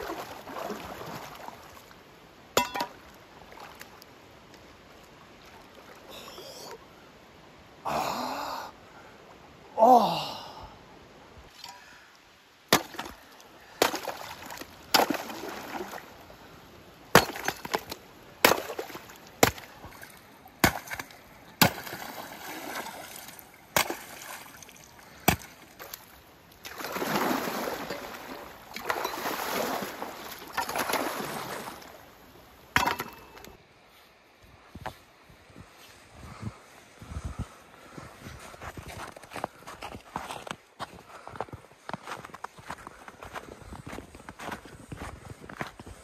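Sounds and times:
water splashing and sloshing: 0.0 - 6.5, 12.6 - 33.6
man gasping: 9.8 - 10.8
axe striking ice: 12.7 - 13.2, 13.8 - 15.6, 17.1 - 19.7, 20.6 - 22.2, 23.7 - 24.4, 25.2 - 26.0, 30.6 - 31.1, 32.8 - 33.4.

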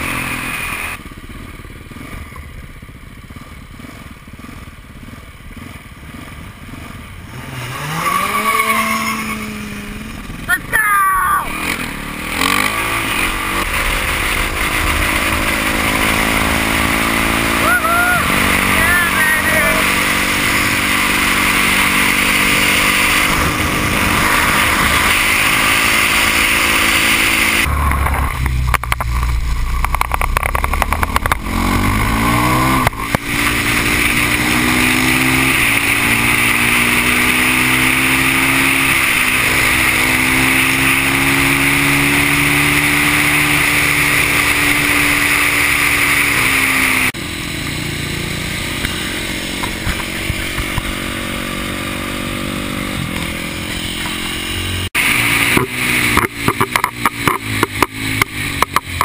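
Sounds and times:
motorcycle engine running: 0.0 - 59.0
heavy low rumble: 11.5 - 18.9, 27.6 - 33.0.

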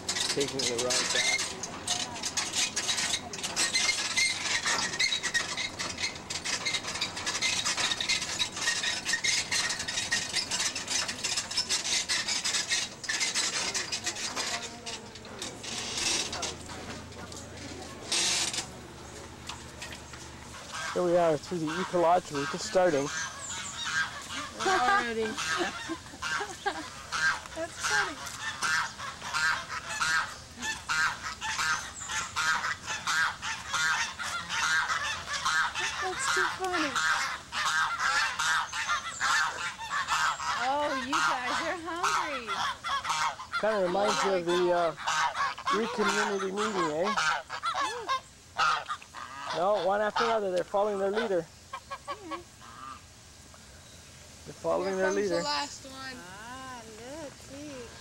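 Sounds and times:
tram rattling with rapid clicks: 0.0 - 30.2
geese honking: 0.0 - 53.1, 54.5 - 58.0.

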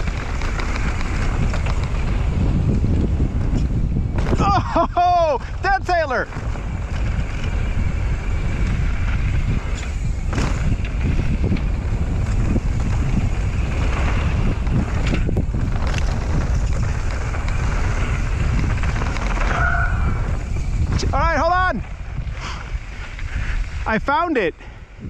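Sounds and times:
bike knocks on bumps: 0.0 - 4.6, 8.7 - 19.5
bike tyre and drivetrain rumble: 0.0 - 25.0
wind buffeting microphone: 0.0 - 25.0.

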